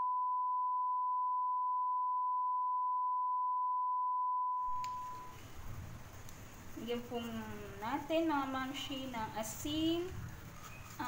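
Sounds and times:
steady test tone beep: 0.0s - 5.4s
faint room noise: 4.6s - 11.0s
light click: 4.7s - 5.2s.

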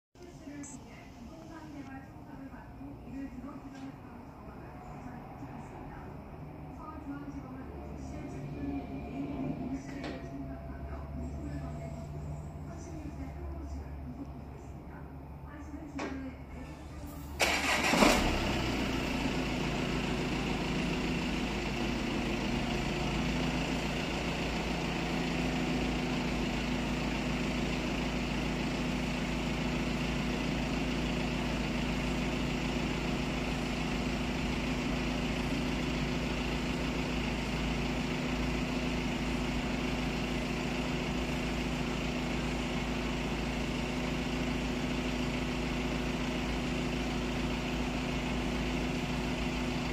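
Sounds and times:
car engine cranking: 17.4s - 23.7s
car engine idling: 17.4s - 49.9s.

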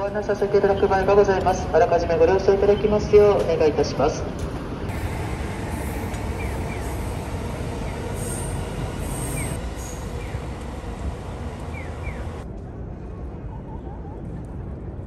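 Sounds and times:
dull city ambience: 0.0s - 15.0s
train rumbling on elevated railway: 0.0s - 15.0s
train wheel squeals: 4.9s - 12.4s.

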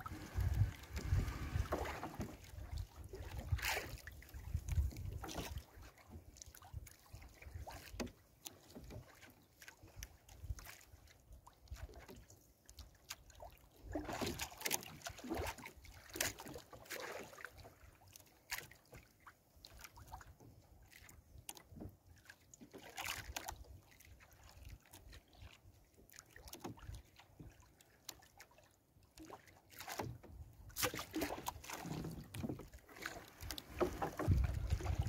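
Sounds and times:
wind rumble on microphone: 0.0s - 3.7s, 4.3s - 5.2s, 34.1s - 35.0s
net knocking against canoe hull: 0.2s - 2.4s, 29.9s - 35.0s.

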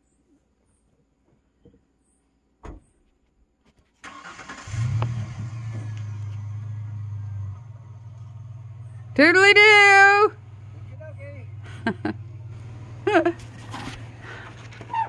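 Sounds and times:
truck engine starting and idling: 4.0s - 15.0s.

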